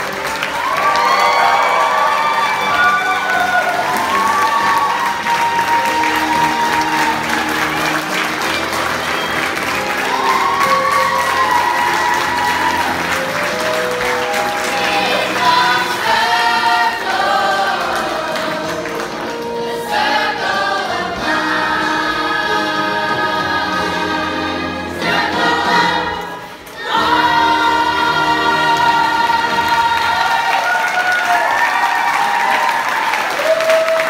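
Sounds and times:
backing music: 0:00.0 - 0:32.4
children singing in chorus: 0:14.6 - 0:18.8, 0:19.7 - 0:30.6.

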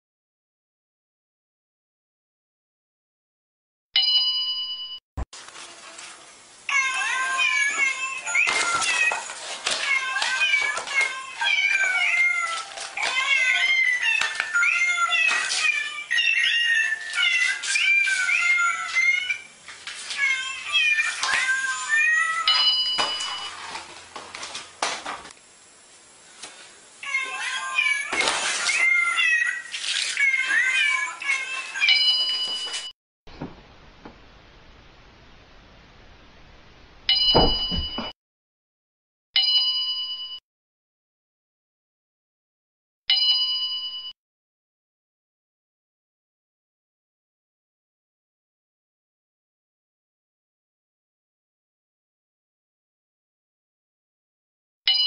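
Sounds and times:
musical greeting card meow tune: 0:06.7 - 0:19.5, 0:20.2 - 0:23.5, 0:27.0 - 0:32.5.

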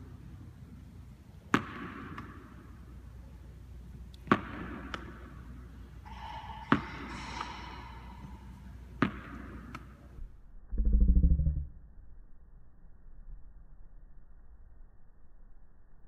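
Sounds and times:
tennis ball smacking: 0:08.9 - 0:09.9.

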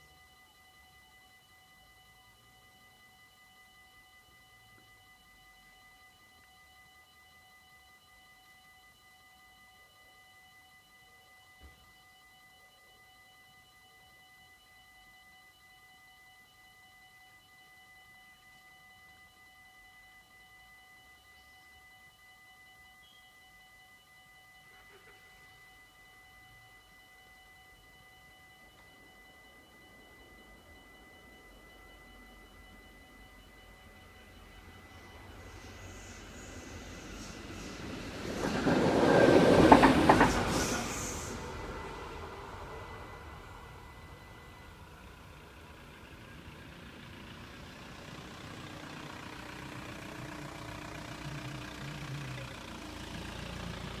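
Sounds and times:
passing train noise: 0:34.6 - 0:45.8
vehicle engine running: 0:40.2 - 0:54.0.

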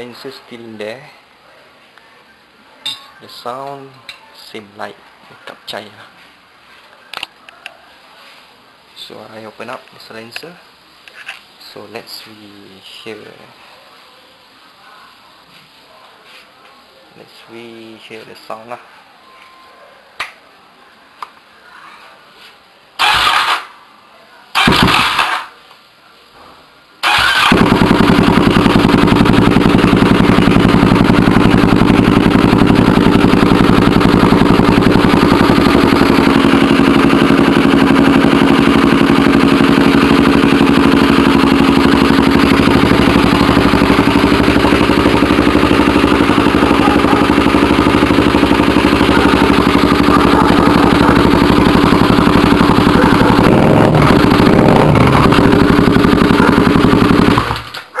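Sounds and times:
motorcycle engine idling loudly: 0:24.6 - 0:25.4, 0:27.0 - 0:57.7.

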